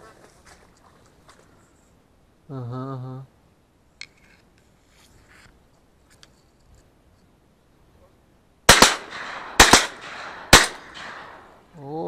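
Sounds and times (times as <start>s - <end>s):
shotgun shots echoing: 8.7s - 11.7s.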